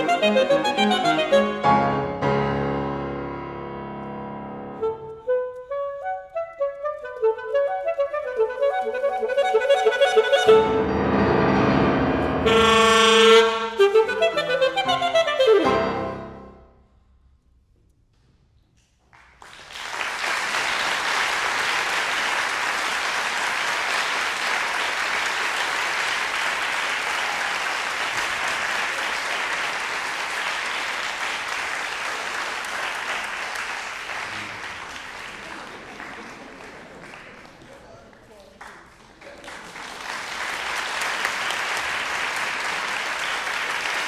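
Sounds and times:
saxophone and piano: 0.0 - 16.6
audience applause: 19.2 - 44.0.

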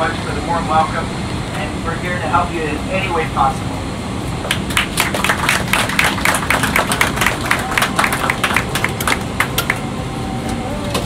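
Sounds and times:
steady low hum: 0.0 - 11.0
people applauding: 4.5 - 9.8.

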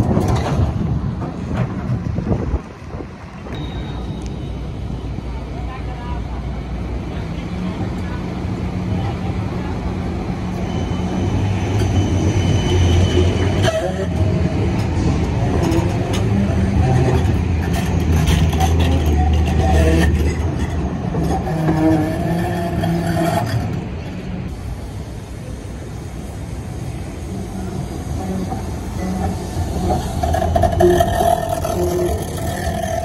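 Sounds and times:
tram motor hum: 0.0 - 33.0
wheels clicking on rails: 12.9 - 24.4, 27.3 - 33.0.

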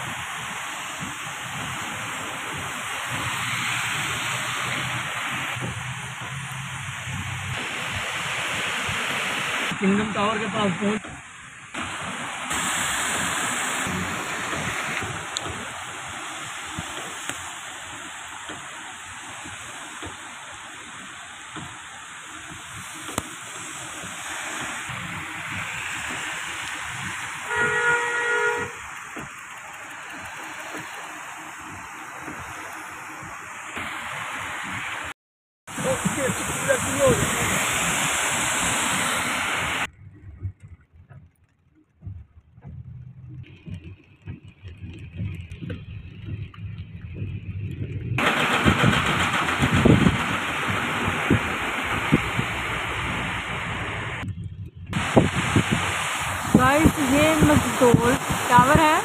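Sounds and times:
tyres hissing on wet road: 0.0 - 40.0, 42.7 - 54.3, 55.0 - 59.0
low road rumble in car: 0.0 - 59.0
two-tone car horn: 27.4 - 28.9.

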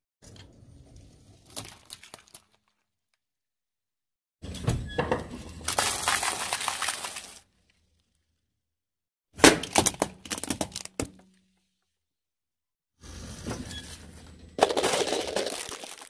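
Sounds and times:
tyre crushing crunchy dough puffs: 5.7 - 7.4, 9.4 - 11.2, 14.6 - 16.0.

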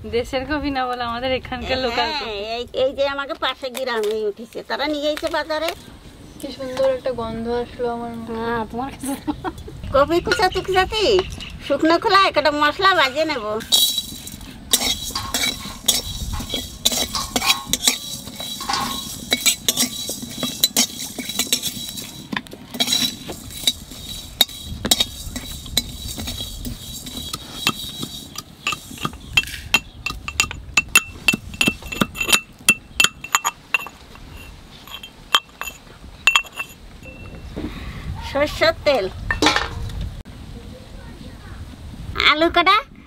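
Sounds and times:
metal spatula scraping wok: 11.8 - 36.8.

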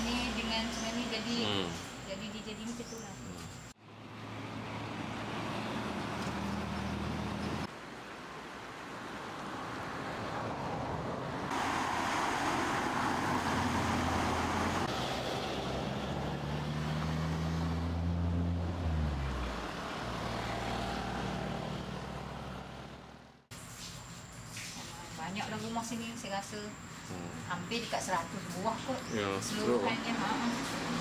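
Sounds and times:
vehicle engines humming: 0.0 - 7.8, 9.3 - 31.0
floodwater rushing: 11.5 - 15.6.

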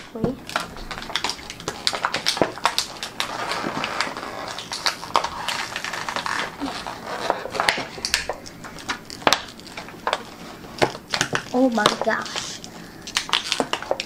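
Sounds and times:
plastic packaging clicking and crinkling: 0.0 - 14.0.

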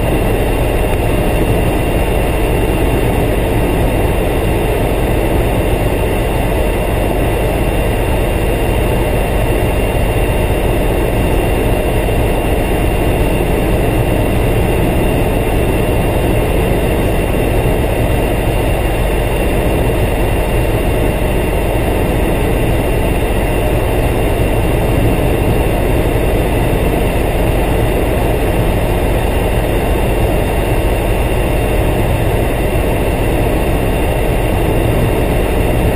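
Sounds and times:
helicopter engine and rotor drone: 0.0 - 35.9
high-pitched turbine whines: 0.0 - 35.9.

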